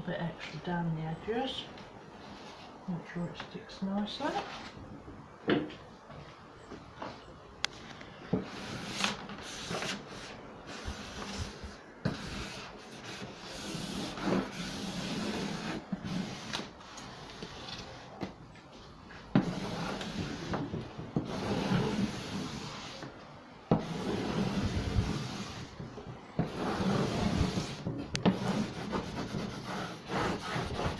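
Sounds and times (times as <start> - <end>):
scratchy rubbing of wallpaper: 8.5 - 18.1, 19.4 - 23.1, 23.7 - 25.8, 26.4 - 30.9.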